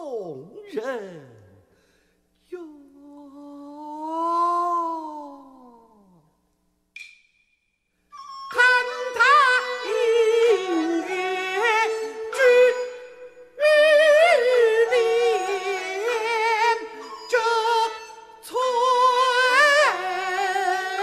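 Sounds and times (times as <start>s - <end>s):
man singing opera: 2.5s - 6.2s, 8.5s - 21.0s.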